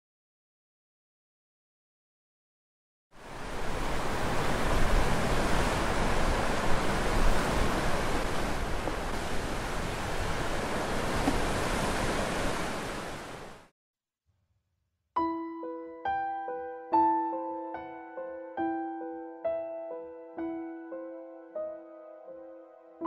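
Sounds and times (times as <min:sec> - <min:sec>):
surf breaking on rocks: 0:03.3 - 0:13.7.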